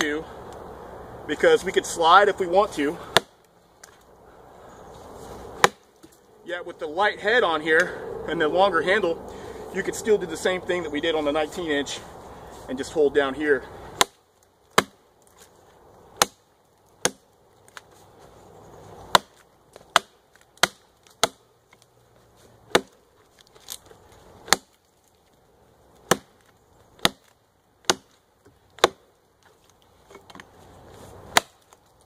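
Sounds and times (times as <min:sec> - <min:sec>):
axe chopping log: 0:03.0 - 0:04.0, 0:05.6 - 0:06.2, 0:13.9 - 0:15.5, 0:16.1 - 0:17.9, 0:19.0 - 0:21.8, 0:22.6 - 0:24.9, 0:26.0 - 0:29.1, 0:31.3 - 0:31.8.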